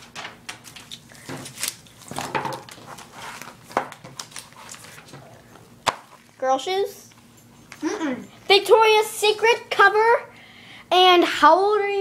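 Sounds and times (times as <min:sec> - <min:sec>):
magazine pages rustling: 0:00.0 - 0:06.3.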